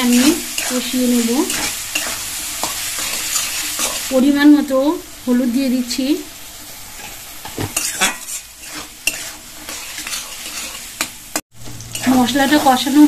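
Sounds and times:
metal spatula scraping a pan: 0:00.0 - 0:04.2, 0:06.9 - 0:13.0
vegetables sizzling in oil: 0:00.0 - 0:13.0.

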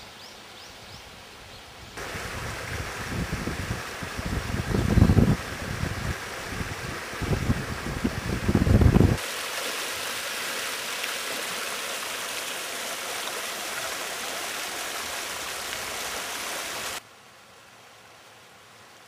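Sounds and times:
stream running over stones: 0:00.0 - 0:17.1
wind rumbling on microphone: 0:01.8 - 0:09.2.

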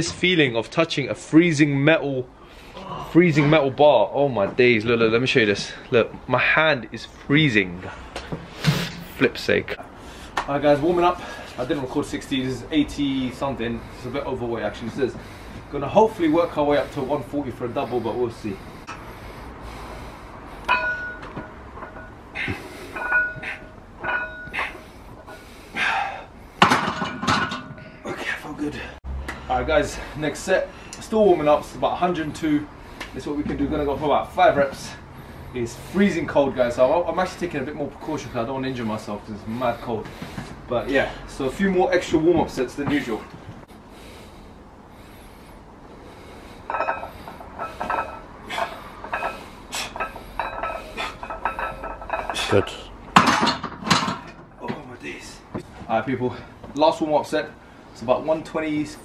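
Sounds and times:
person breathing hard: 0:17.7 - 0:20.9, 0:22.3 - 0:23.8, 0:24.5 - 0:26.6
barbell clanking: 0:20.6 - 0:25.4, 0:26.6 - 0:27.9, 0:46.7 - 0:54.4
metallic ringing of weight plates: 0:20.7 - 0:25.4, 0:46.7 - 0:52.8.

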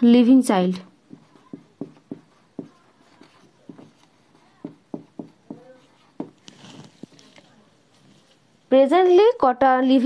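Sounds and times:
marker pen writing on whiteboard: 0:00.8 - 0:07.2.

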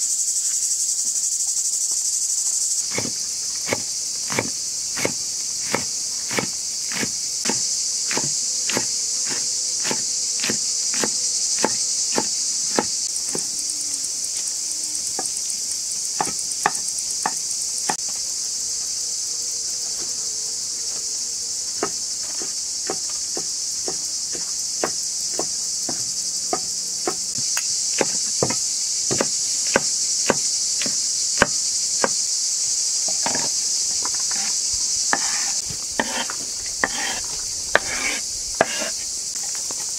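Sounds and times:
insects chirring: 0:00.0 - 0:39.9
cleaver chopping on wooden board: 0:02.9 - 0:13.5, 0:16.2 - 0:18.0, 0:21.8 - 0:32.2, 0:33.2 - 0:33.5, 0:35.1 - 0:37.2, 0:37.8 - 0:38.9.

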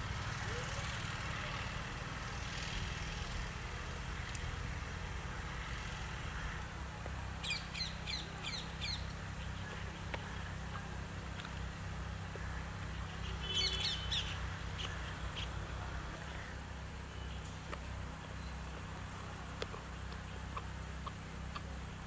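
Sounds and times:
small birds chirping: 0:06.4 - 0:22.0.

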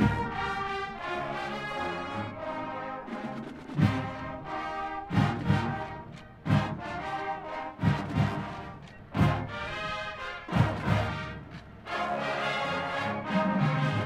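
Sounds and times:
marching band brass chords: 0:00.0 - 0:14.0.

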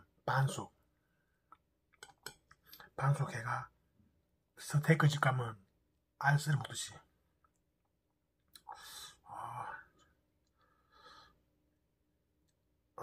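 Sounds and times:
man breathing: 0:10.5 - 0:11.6.

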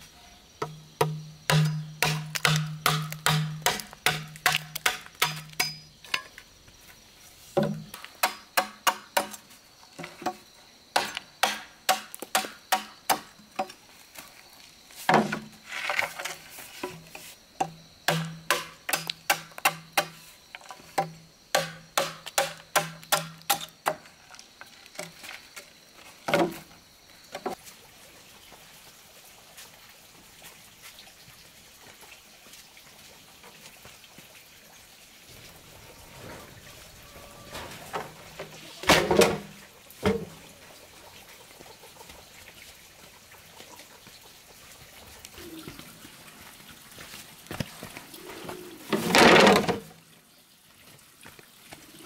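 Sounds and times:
machete chopping bamboo: 0:00.6 - 0:05.9, 0:07.6 - 0:09.4, 0:11.0 - 0:13.3, 0:17.6 - 0:20.2, 0:21.0 - 0:24.0.

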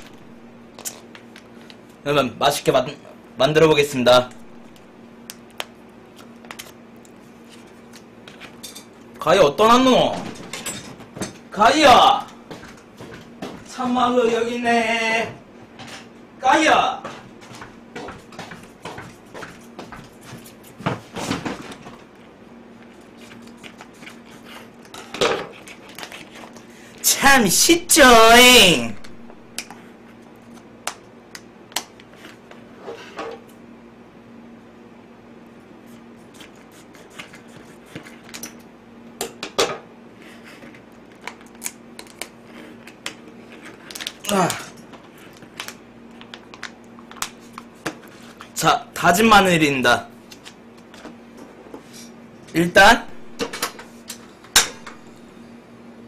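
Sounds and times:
faint steady hum: 0:00.0 - 0:56.0
knocks and thumps of handling: 0:20.8 - 0:22.0
plastic food package crinkling: 0:43.9 - 0:47.6.

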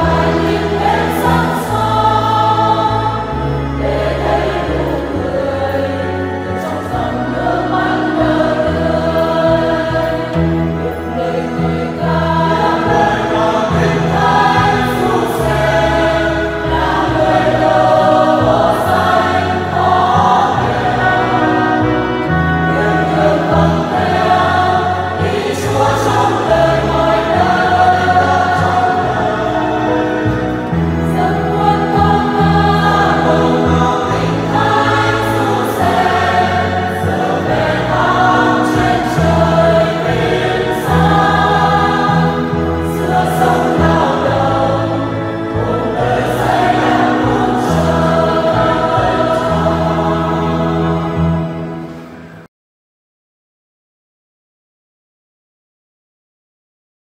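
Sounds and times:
choir singing a hymn: 0:00.0 - 0:52.5.

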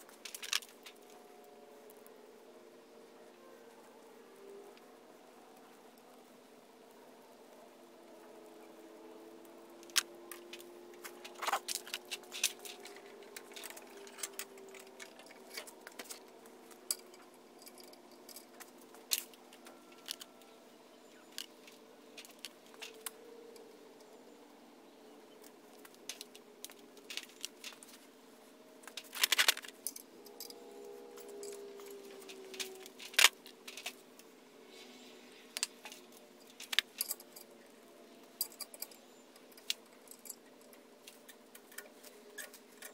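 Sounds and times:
small metal parts clinking: 0:00.0 - 0:01.2, 0:09.8 - 0:24.2, 0:25.4 - 0:28.0, 0:28.8 - 0:34.2, 0:35.4 - 0:42.9
faint steady hum: 0:00.0 - 0:42.9.

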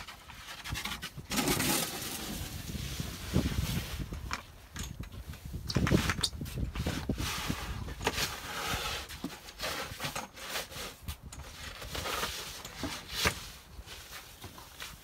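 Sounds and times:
shovel blade scraping concrete: 0:00.0 - 0:03.7, 0:06.8 - 0:14.2.

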